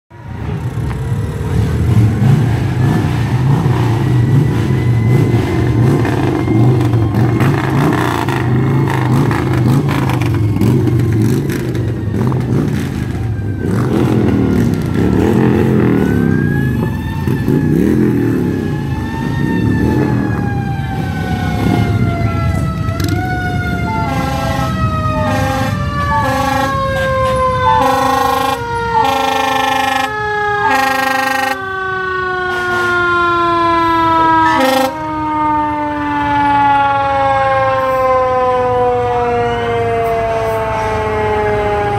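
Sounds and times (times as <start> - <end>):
fire truck sirens wailing: 0.1 - 41.9
air horn blasts: 23.9 - 31.7, 32.4 - 33.2, 33.8 - 35.1.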